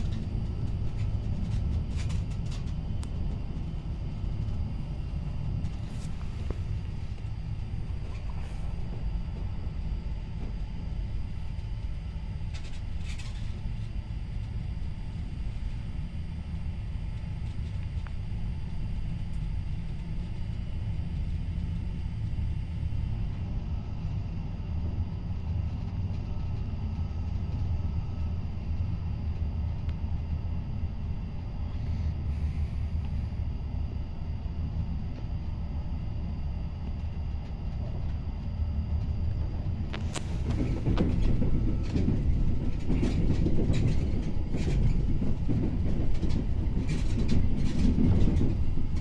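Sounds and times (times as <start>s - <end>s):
faint high whine: 0.0s - 49.0s
train low rumble: 0.0s - 49.0s.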